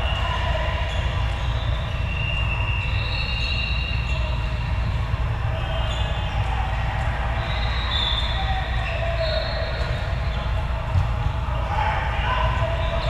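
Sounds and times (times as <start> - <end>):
low rumble of gym: 0.0 - 13.0
shoe squeaks: 0.9 - 4.7, 5.7 - 6.3, 7.4 - 10.6.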